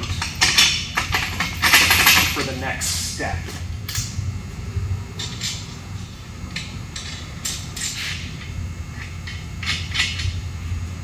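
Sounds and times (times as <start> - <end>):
steady low hum: 0.0 - 11.0
metallic scrapes and clinks of bolts: 6.6 - 8.4.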